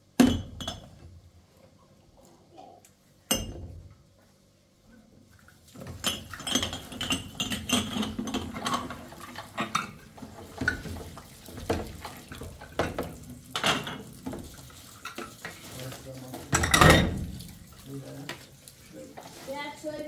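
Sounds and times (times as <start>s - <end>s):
dishes and cutlery clinking: 5.8s - 17.4s.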